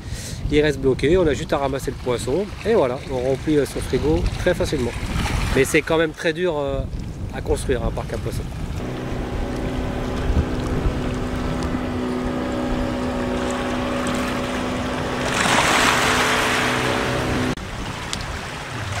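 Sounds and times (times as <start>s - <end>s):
loud rush of water or wind: 2.6s - 19.0s
small motor running: 8.8s - 17.6s.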